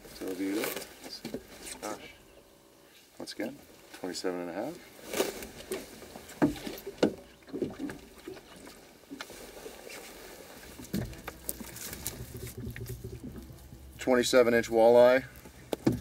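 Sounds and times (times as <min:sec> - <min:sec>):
low steady rumble: 0:10.8 - 0:16.0
knocks on aluminum boat: 0:15.7 - 0:16.0.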